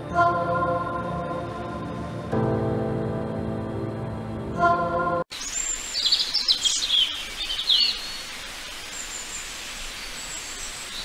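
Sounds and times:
birds chirping and twittering: 0:05.3 - 0:11.0
forest ambience hiss: 0:05.3 - 0:11.0.

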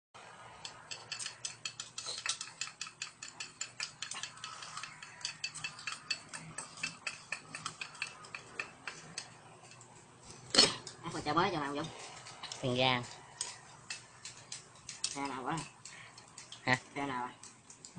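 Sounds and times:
spoon clinking on metal bowl: 0:00.7 - 0:09.8.

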